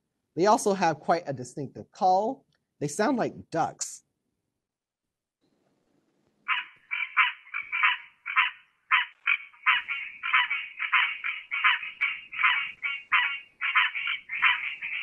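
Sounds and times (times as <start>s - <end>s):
tree frog calls: 6.5s - 15.0s.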